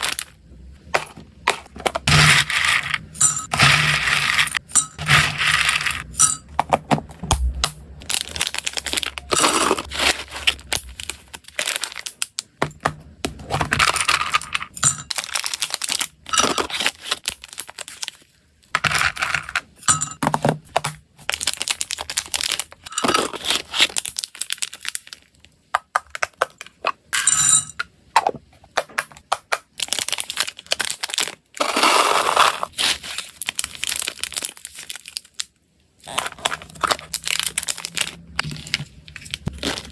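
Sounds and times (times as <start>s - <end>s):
plastic bag crinkling: 8.0s - 12.6s, 13.6s - 19.1s, 21.2s - 25.5s, 29.8s - 39.9s
dry snacks clinking into glass jug: 8.1s - 10.9s.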